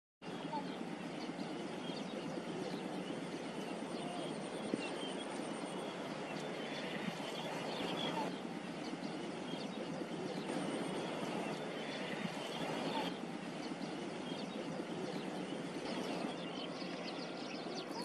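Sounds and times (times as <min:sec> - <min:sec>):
outdoor background noise: 0:00.2 - 0:18.0.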